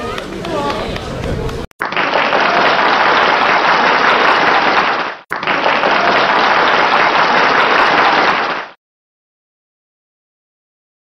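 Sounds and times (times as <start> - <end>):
crowd applause: 0.3 - 8.8.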